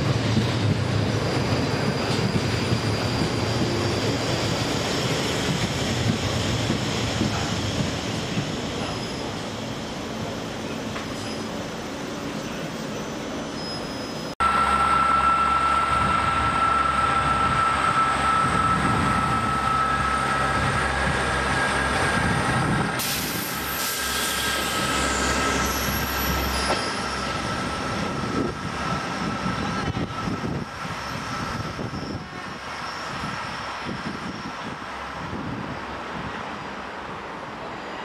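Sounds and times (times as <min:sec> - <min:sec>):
train high whine: 0:00.0 - 0:38.0
diesel train engine drone: 0:14.2 - 0:38.0.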